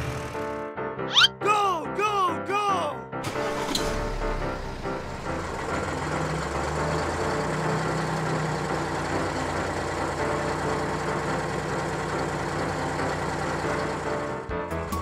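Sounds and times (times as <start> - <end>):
truck engine running: 3.3 - 14.9.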